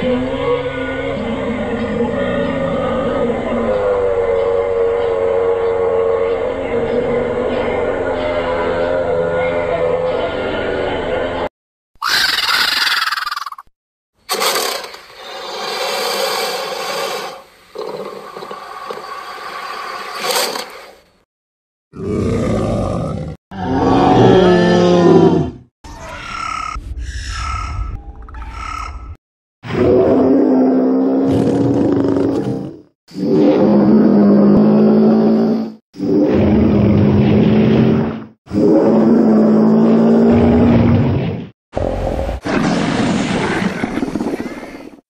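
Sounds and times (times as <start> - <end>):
dinosaur roar: 0.0 - 10.8, 21.9 - 25.7, 29.6 - 41.1
pitched creature call: 12.0 - 13.6.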